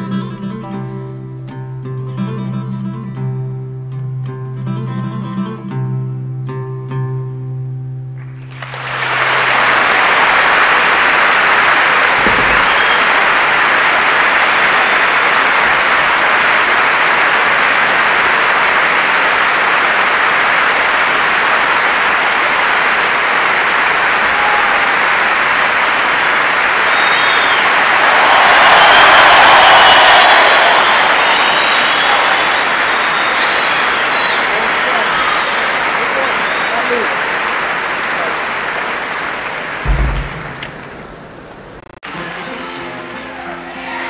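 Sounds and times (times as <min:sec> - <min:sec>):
audience applauding: 0:08.2 - 0:44.0
audience whistles: 0:08.5 - 0:15.9, 0:26.6 - 0:37.4.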